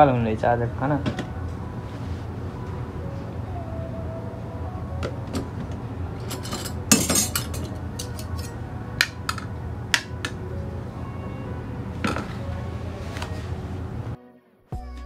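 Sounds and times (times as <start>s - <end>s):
dishes clattering: 5.0s - 10.4s, 12.0s - 12.4s
metal spoon clinking on plates: 6.2s - 10.4s.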